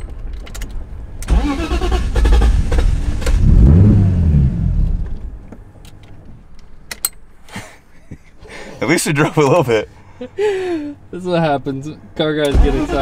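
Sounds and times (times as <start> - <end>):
car engine revving: 1.3 - 5.2.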